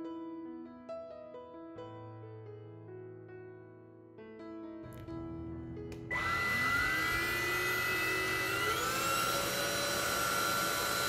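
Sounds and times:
vacuum motor whine and air rush: 6.0s - 11.0s.

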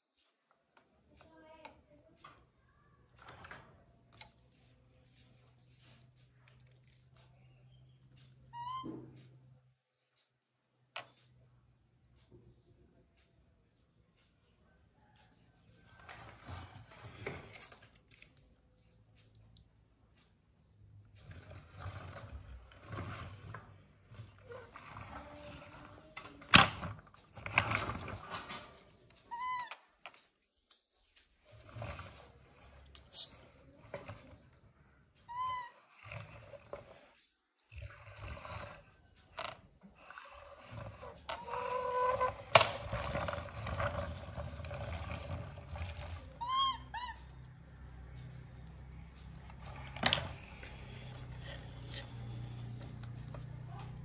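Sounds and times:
high squeak: 46.2s - 47.4s.

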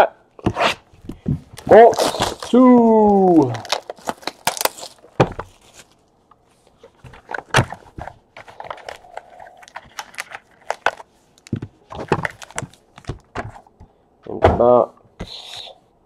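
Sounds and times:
cardboard box handled and opened: 1.6s - 6.0s.

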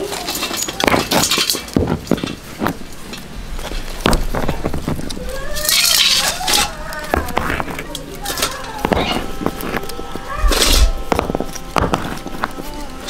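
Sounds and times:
stones knocking on concrete: 0.8s - 2.8s, 3.6s - 5.2s, 7.0s - 8.0s, 11.1s - 12.6s.

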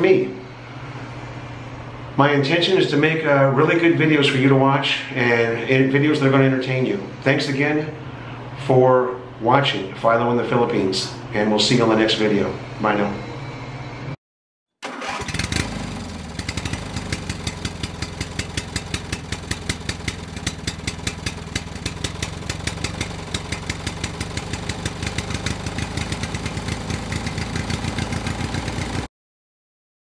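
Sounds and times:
motorcycle engine idling: 15.1s - 29.1s.

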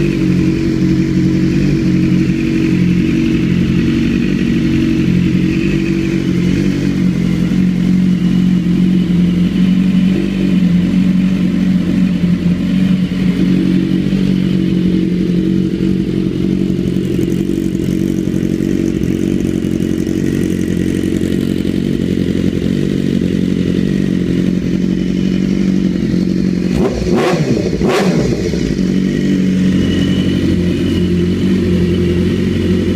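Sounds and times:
motorcycle engine idling: 0.0s - 32.9s.

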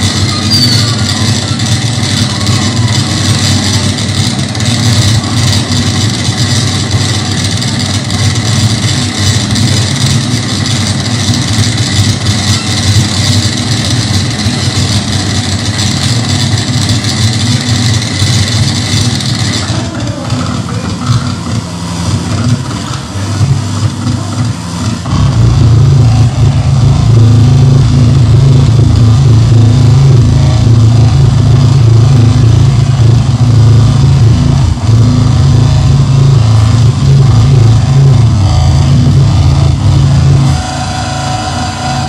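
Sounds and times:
loud dense low electronic rumble: 0.0s - 42.0s
harsh electronic hiss: 23.2s - 42.0s.

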